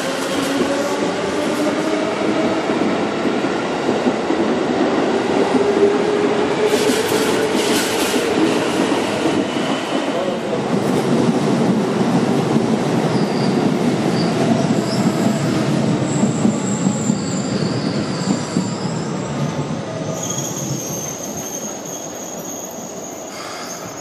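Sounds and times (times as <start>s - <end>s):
train wheels rolling over rails: 0.0s - 21.9s
high wheel squeals: 20.0s - 24.0s.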